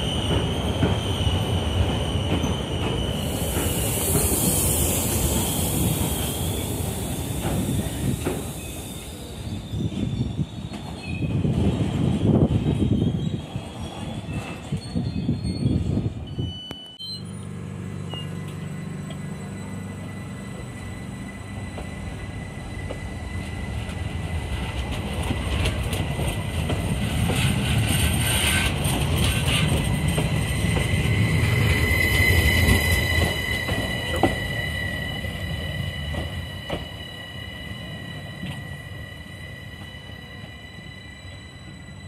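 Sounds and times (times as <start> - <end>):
electric train passing: 0.0 - 14.7, 15.7 - 42.0
traction motors whining: 16.8 - 42.0.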